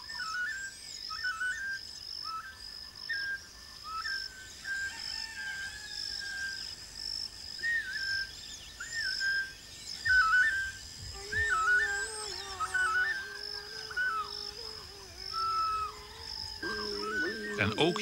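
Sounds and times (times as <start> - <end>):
high whistled calls: 7.6 - 18.0
high-pitched pulsing drone: 11.1 - 18.0.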